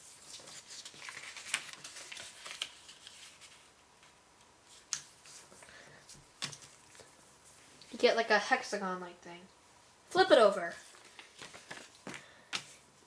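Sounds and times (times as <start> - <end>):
paper rustling and crinkling: 0.0 - 7.6, 10.8 - 13.0.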